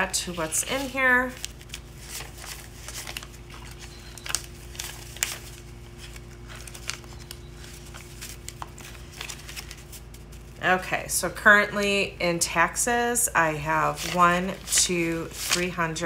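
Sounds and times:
paper bills rustling and flicking: 0.0 - 10.6, 13.8 - 16.0
faint steady hum: 0.0 - 16.0.

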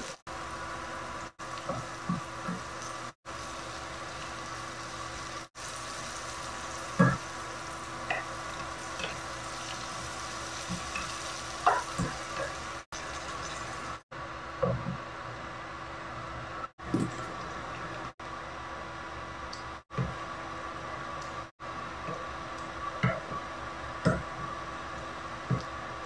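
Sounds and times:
onion and garlic sizzling in oil: 0.0 - 14.0.

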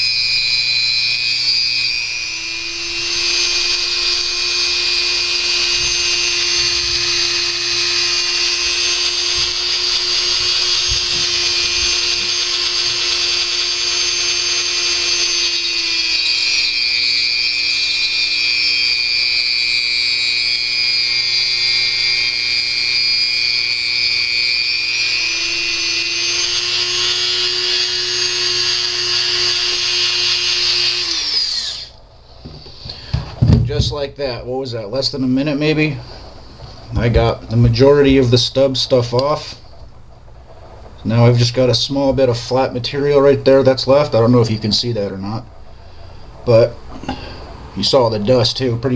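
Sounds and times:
rotary tool grinding resin: 0.0 - 33.8.

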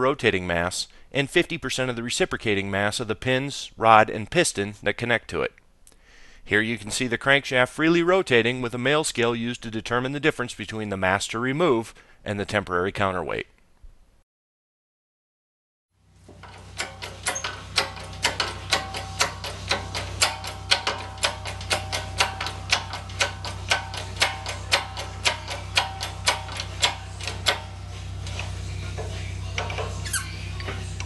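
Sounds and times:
steady low hum: 16.1 - 31.0
metallic ticking of crankshaft: 16.3 - 31.0.

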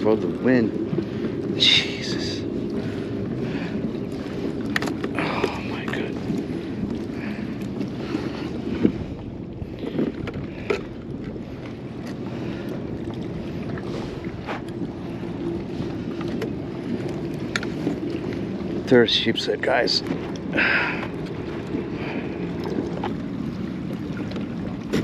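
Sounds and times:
water lapping against kayak hull: 0.0 - 25.0
wind buffeting microphone: 0.0 - 25.0
fishing gear clicking and knocking: 4.6 - 6.0.

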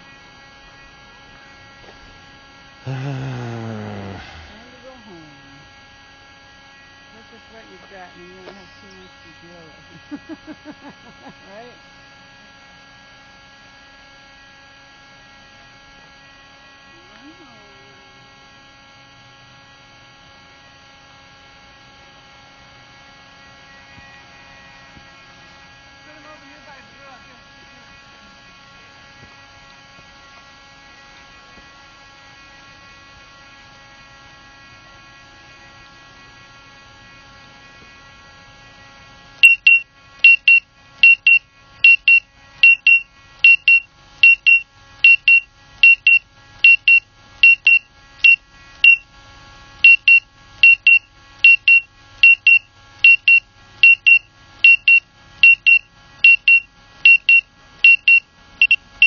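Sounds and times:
drone propellers whining: 2.9 - 5.7
high warning beeps: 39.4 - 49.0, 49.9 - 58.8.

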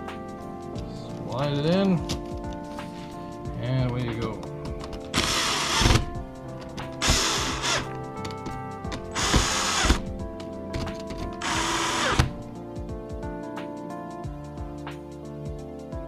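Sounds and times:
cordless drill driving screws: 5.2 - 6.1, 7.0 - 7.9, 9.1 - 10.1, 11.4 - 12.4.

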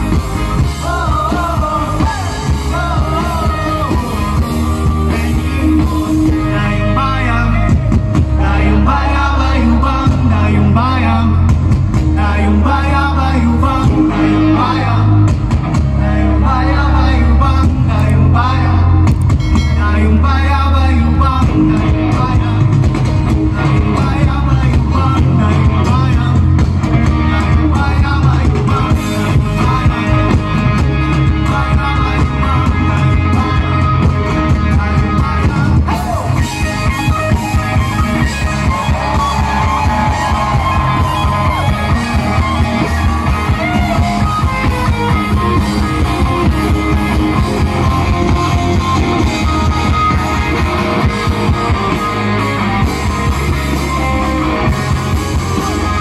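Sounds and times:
drum kit steady beat: 0.0 - 8.9, 9.6 - 12.6, 21.3 - 56.0
guitars: 0.0 - 56.0
lead singer: 0.0 - 56.0.

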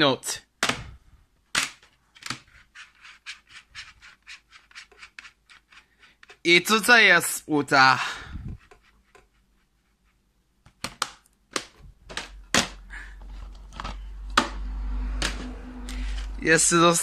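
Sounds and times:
plastic cases clicking: 10.6 - 14.6.

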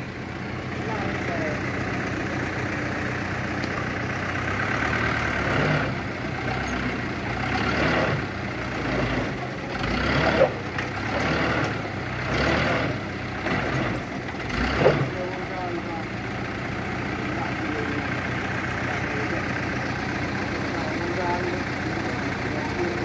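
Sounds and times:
truck engine running: 0.0 - 23.0.

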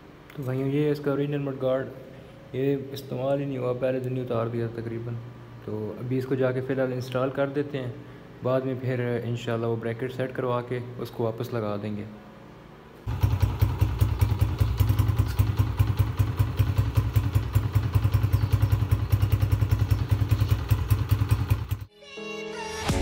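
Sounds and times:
motorcycle engine idling: 13.1 - 21.9.

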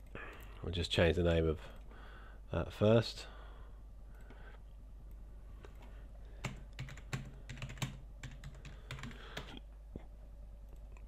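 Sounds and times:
computer keyboard typing: 6.4 - 9.5.

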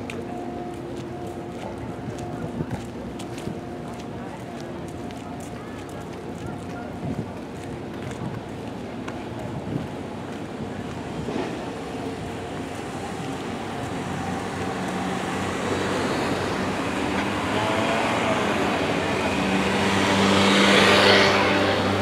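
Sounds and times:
cars driving past: 11.2 - 22.0
motor scooter passing: 13.1 - 22.0.

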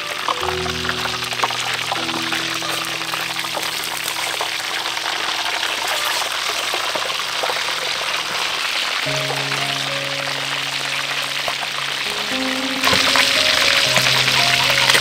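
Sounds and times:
soft background music: 0.0 - 5.7, 8.4 - 15.0
fish sizzling in hot oil: 0.0 - 15.0.

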